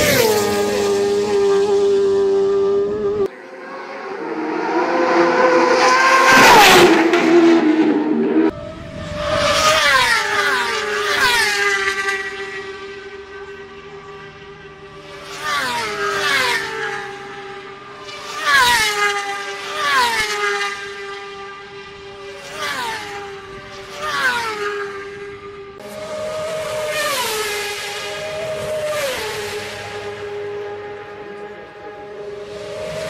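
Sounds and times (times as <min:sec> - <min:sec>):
racing motorcycles passing by: 0:00.0 - 0:33.0.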